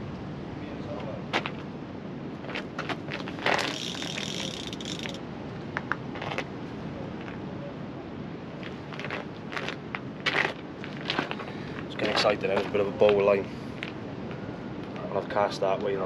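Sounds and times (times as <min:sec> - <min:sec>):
fishing reel ratcheting: 0:03.5 - 0:05.2.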